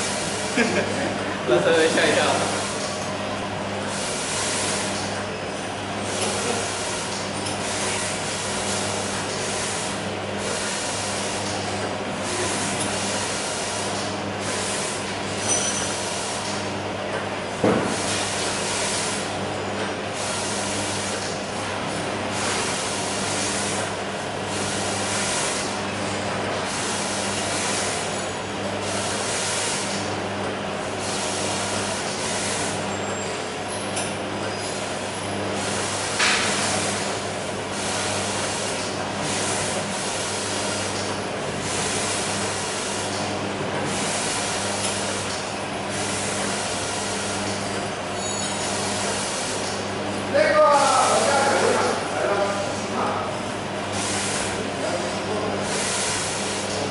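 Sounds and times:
machine motor hum: 0.0s - 56.9s
hissing mechanical noise: 17.4s - 56.9s.

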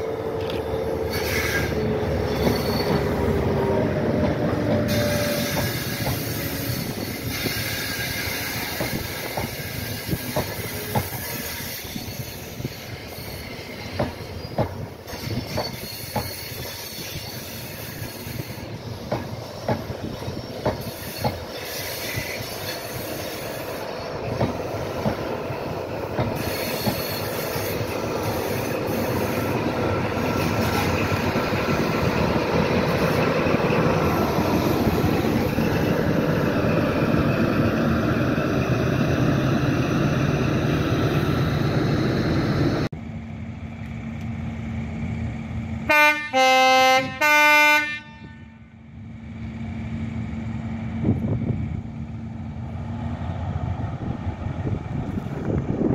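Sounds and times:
train coaches rumbling over track: 0.0s - 55.9s
train diesel engine passing: 0.0s - 55.9s
train horn blasts: 45.9s - 48.8s.

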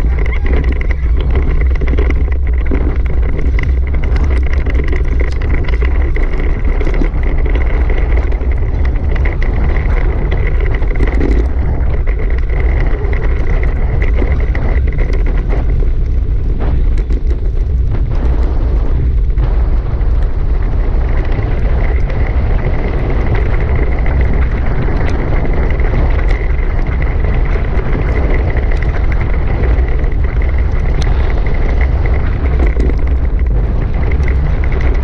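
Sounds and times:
small rattles over bumps: 0.0s - 35.0s
thin steady whine: 0.0s - 35.0s
tyres rolling on dirt: 0.0s - 35.0s
wind rumble on microphone: 0.0s - 35.0s.

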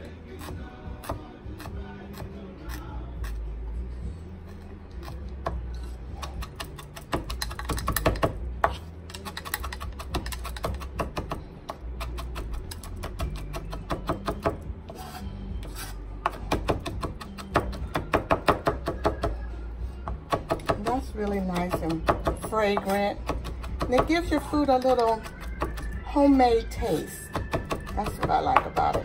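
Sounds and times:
knife chopping on cutting board: 6.2s - 19.4s, 20.1s - 21.0s.

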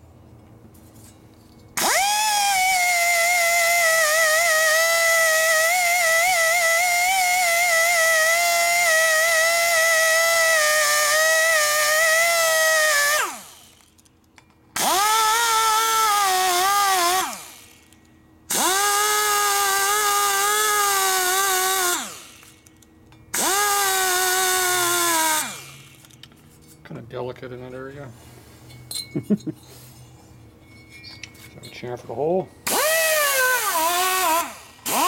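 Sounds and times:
die grinder whining into metal: 1.8s - 13.9s, 14.8s - 26.2s, 32.7s - 35.0s.

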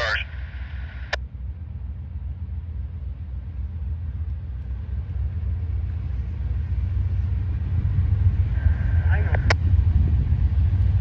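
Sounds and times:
freight train rumble: 0.0s - 11.0s.

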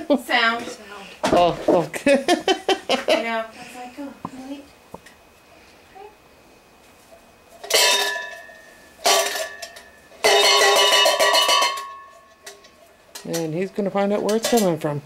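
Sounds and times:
metal clanging: 7.6s - 14.8s.

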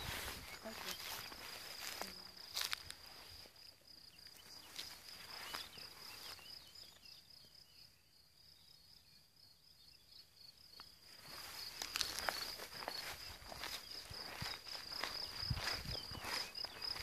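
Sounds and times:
footsteps rustling through grass: 0.0s - 6.6s, 11.1s - 17.0s
insects chirring: 0.0s - 17.0s
faint bird chirps: 4.0s - 10.6s.

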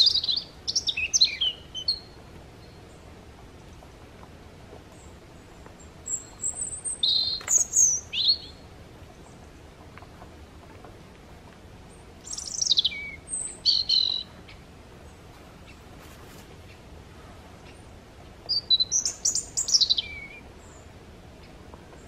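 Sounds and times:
small bird singing: 0.0s - 3.1s, 4.9s - 9.5s, 11.9s - 15.9s, 18.5s - 22.0s.

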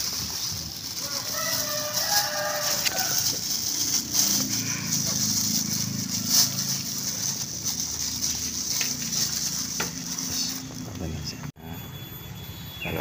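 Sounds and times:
plastic bag crinkling: 0.0s - 11.0s
low drone: 3.2s - 12.0s.

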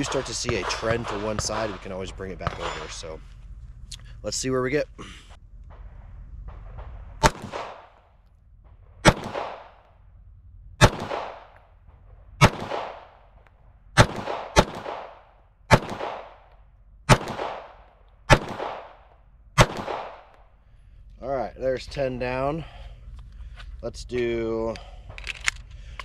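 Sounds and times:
pistol shots: 0.0s - 3.0s, 5.7s - 10.0s, 10.8s - 20.5s.

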